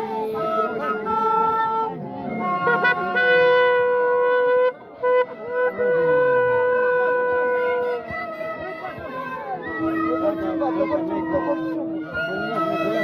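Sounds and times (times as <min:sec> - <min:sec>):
wooden duct flutes playing: 0:00.0 - 0:13.0.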